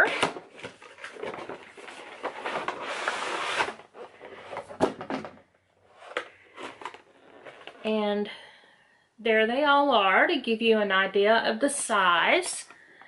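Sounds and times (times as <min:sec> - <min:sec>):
packaging rustling: 0:00.0 - 0:07.8.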